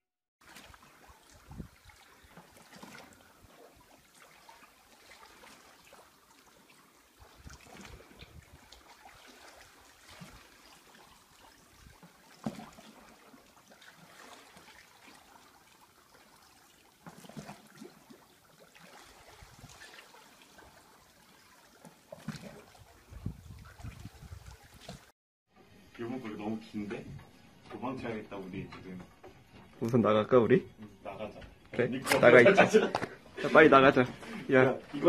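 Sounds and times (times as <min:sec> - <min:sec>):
pool water sloshing: 0:00.4 - 0:25.1.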